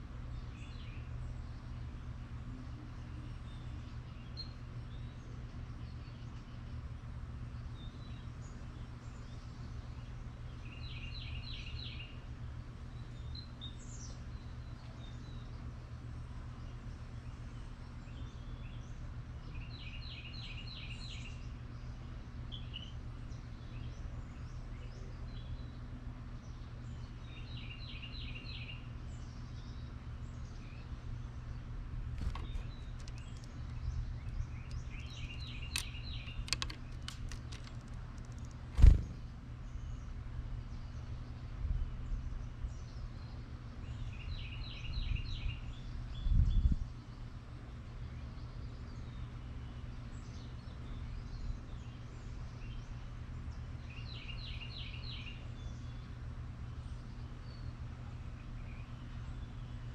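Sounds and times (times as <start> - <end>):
steady low hum: 0.0 - 59.9
sharp clicks: 32.1 - 39.3
bird chirps: 32.2 - 40.1.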